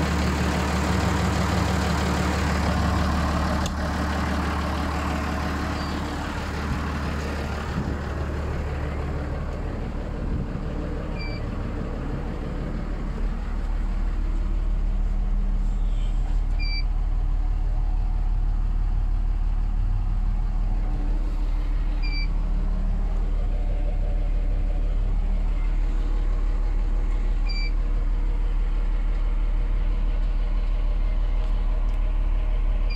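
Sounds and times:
tractor diesel engine running: 0.0s - 32.9s.

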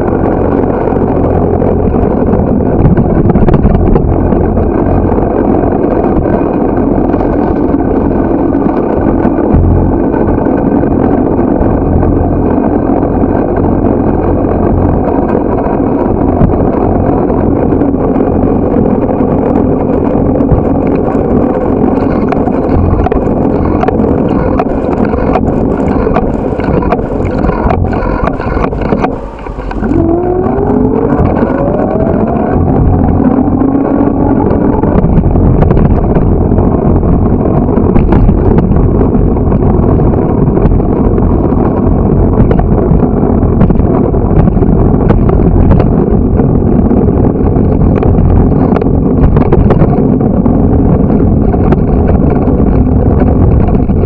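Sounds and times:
rising whine: 0.0s - 39.8s
road rumble: 0.0s - 54.0s
wind rushing over microphone: 0.0s - 54.0s.

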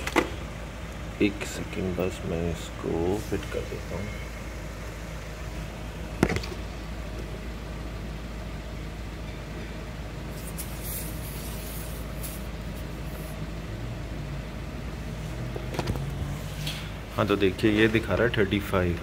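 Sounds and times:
steady low hum: 0.0s - 19.0s
air hissing: 10.3s - 13.5s.

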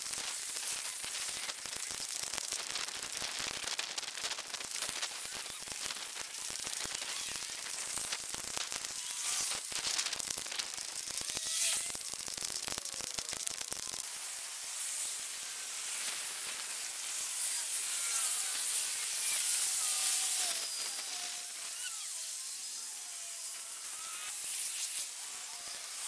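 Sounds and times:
dense crackling: 0.0s - 14.1s.

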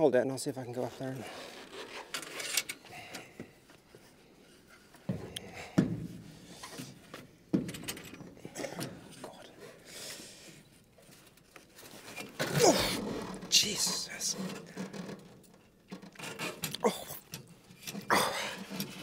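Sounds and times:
quiet rustling: 6.6s - 19.0s.

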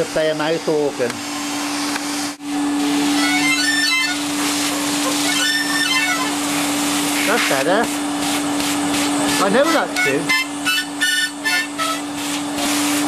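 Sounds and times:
harmonica reeds sounding: 3.0s - 4.4s, 5.0s - 6.6s, 9.3s - 12.2s.

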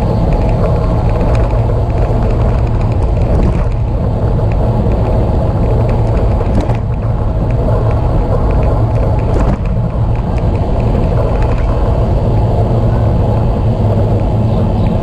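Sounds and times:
bicycle tyre road noise: 0.0s - 15.0s
wind buffeting microphone: 0.0s - 15.0s.

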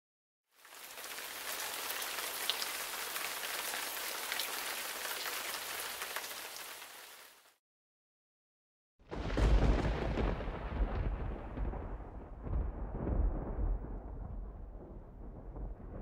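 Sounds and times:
steady rain hiss: 0.6s - 7.6s.

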